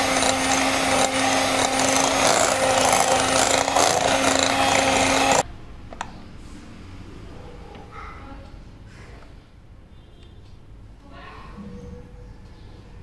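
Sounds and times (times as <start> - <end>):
electric hand mixer whipping: 0.0 - 5.4.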